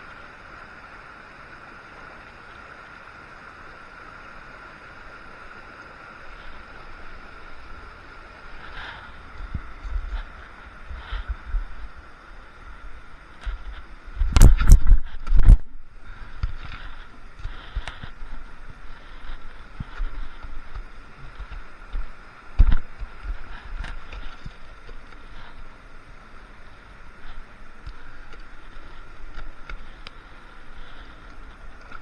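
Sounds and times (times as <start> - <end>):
creek water running: 0.0 - 32.0
wind on microphone: 8.5 - 26.2
camera handling rumble: 13.4 - 15.7.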